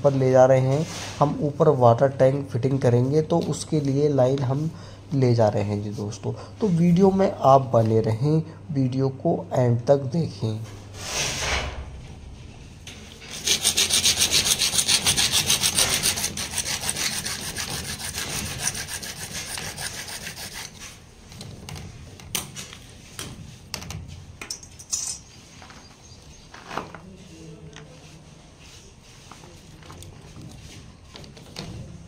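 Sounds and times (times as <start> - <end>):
hacksaw sawing plastic pipe: 13.3 - 20.9.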